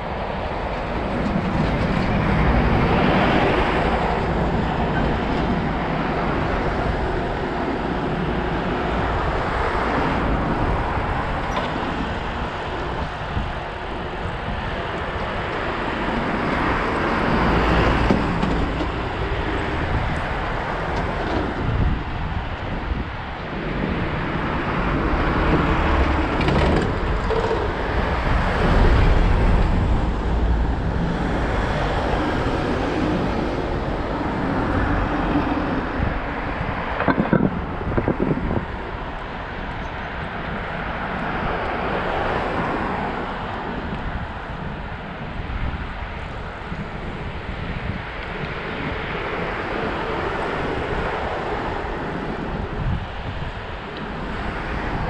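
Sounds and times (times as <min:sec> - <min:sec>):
wind rushing over microphone: 0:00.0 - 0:55.0
low rumble: 0:23.7 - 0:35.7.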